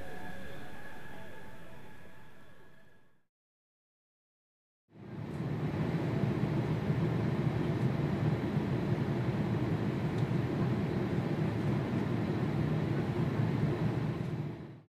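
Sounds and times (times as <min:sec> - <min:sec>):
jet engine rumble: 0:05.0 - 0:14.8.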